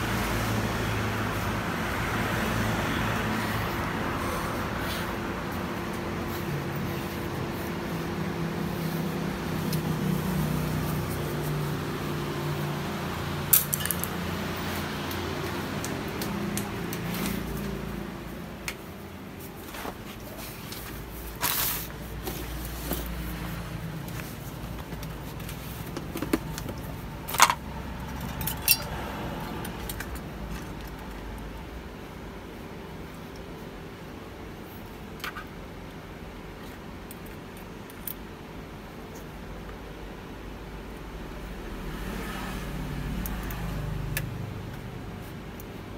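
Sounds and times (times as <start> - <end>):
low mechanical hum: 0.0 - 45.9
metal parts clinking on plastic tub: 13.5 - 14.1.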